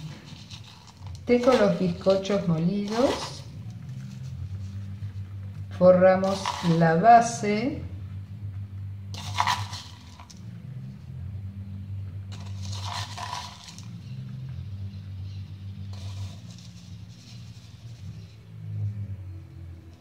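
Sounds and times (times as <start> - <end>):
crumbs rustling and scraping: 0.0 - 7.4, 9.1 - 10.5, 12.3 - 18.5
steady low hum: 0.0 - 20.0.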